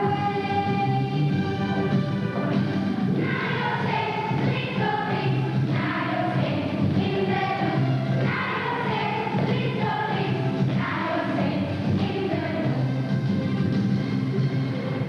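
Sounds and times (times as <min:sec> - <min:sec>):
instrumental backing music: 0:00.0 - 0:15.0
group of voices singing: 0:03.1 - 0:12.9.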